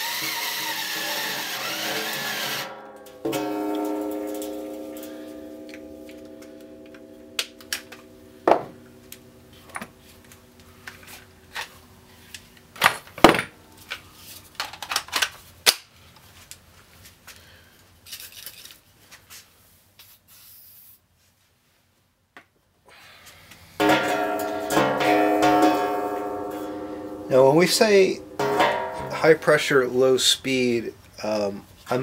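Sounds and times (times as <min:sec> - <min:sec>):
electric drill winding down: 0:00.0 - 0:02.7
tools clanking against metal pot: 0:23.8 - 0:29.3.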